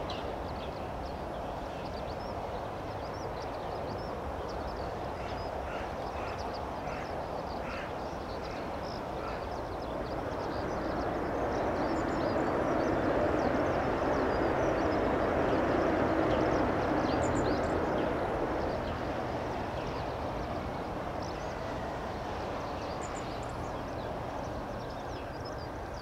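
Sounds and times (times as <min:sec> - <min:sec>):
crows cawing: 0:05.2 - 0:07.9, 0:08.5 - 0:09.5
jet engines rushing: 0:08.6 - 0:26.0.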